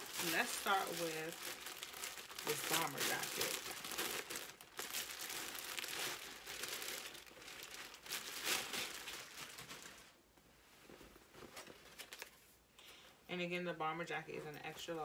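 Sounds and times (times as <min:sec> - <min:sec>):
plastic bag crinkling: 0:00.0 - 0:10.2, 0:11.4 - 0:12.4.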